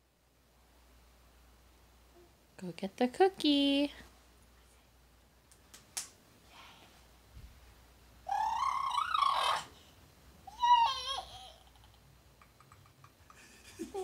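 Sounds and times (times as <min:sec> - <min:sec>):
toddler vocalizing: 0:08.3 - 0:09.8, 0:10.5 - 0:11.9.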